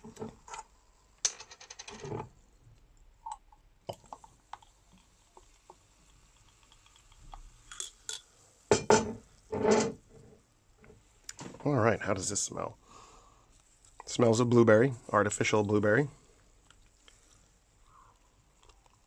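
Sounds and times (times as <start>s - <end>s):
soda pouring into paper cup: 3.9s - 7.7s
marble clinking in glass bottle: 6.9s - 8.2s.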